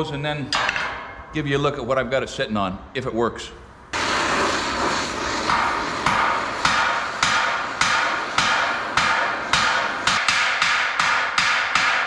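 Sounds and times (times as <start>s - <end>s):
gas torch hissing: 3.8s - 12.0s.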